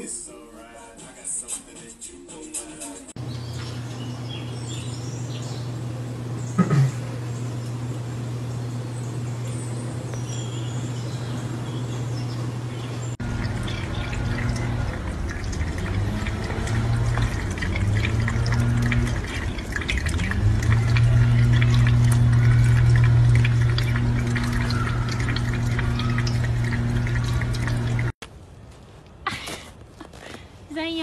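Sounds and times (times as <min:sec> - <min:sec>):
steady low hum: 0:03.2 - 0:28.2
cat lapping water: 0:05.0 - 0:28.2
faucet running into steel sink: 0:11.7 - 0:28.1.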